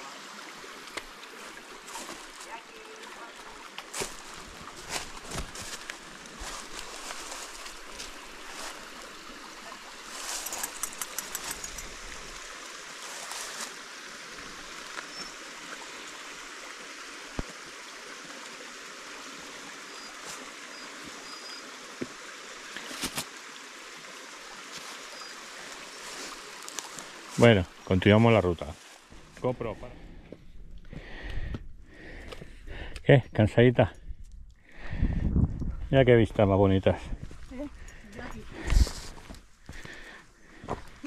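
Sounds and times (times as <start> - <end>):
stream flowing: 0.0 - 32.7, 36.1 - 41.0.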